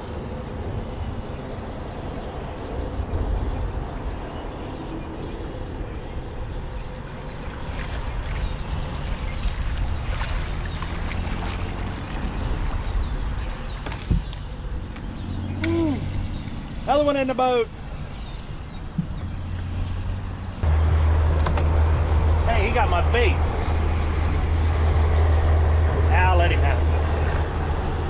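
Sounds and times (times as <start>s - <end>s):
steady low rumble: 0.0s - 28.0s
fish splashing at the surface: 7.4s - 12.4s.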